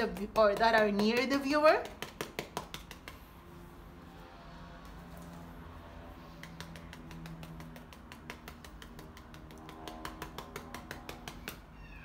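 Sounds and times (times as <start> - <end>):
brush tapping paint on canvas: 0.0 - 3.7, 6.1 - 11.7.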